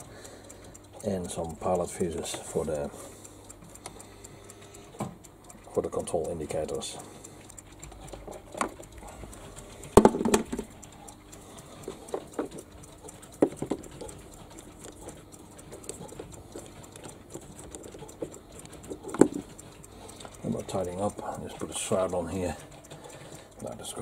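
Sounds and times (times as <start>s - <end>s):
faint steady hum: 0.0s - 24.0s
switch click with rattle: 9.9s - 11.2s.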